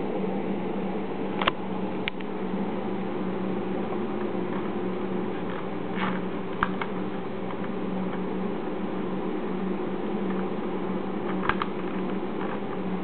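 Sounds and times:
low electrical hum: 0:00.0 - 0:13.0
computer mouse clicks: 0:11.2 - 0:12.6.

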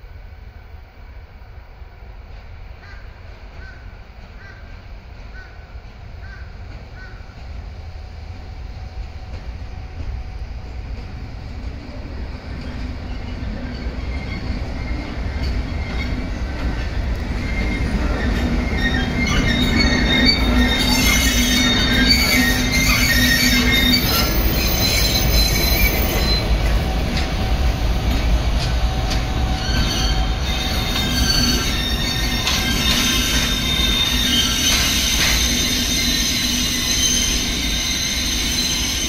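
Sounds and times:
train wheels rumbling on rails: 0:00.0 - 0:39.0
wheel flange squeal: 0:12.6 - 0:16.4, 0:17.4 - 0:26.7, 0:29.2 - 0:39.0.

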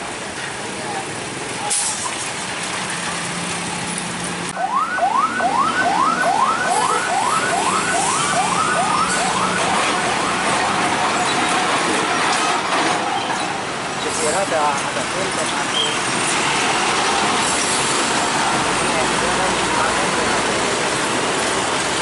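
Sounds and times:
truck engines passing: 0:00.0 - 0:22.0
siren whooping: 0:04.6 - 0:11.4.

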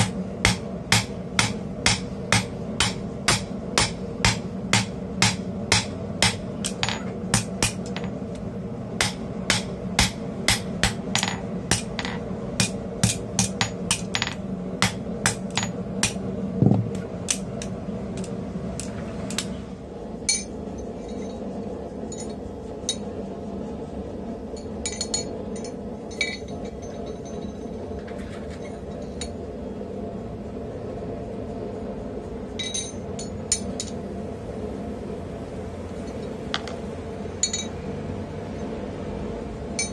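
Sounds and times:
hammer striking hot steel: 0:00.0 - 0:08.2, 0:09.0 - 0:16.2, 0:20.2 - 0:20.5.

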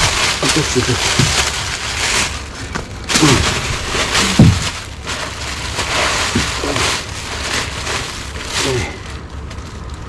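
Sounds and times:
plastic bags rustling: 0:00.0 - 0:10.0
low thumps: 0:02.7 - 0:05.1.

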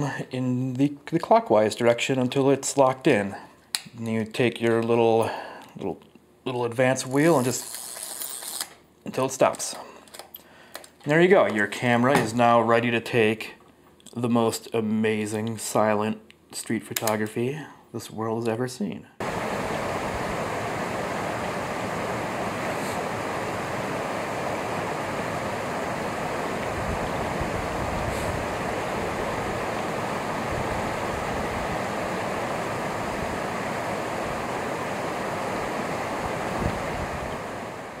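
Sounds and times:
stream water flowing: 0:19.2 - 0:38.0.

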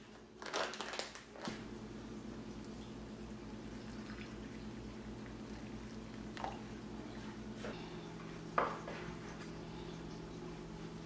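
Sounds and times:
water pouring into a bowl: 0:03.6 - 0:06.7.

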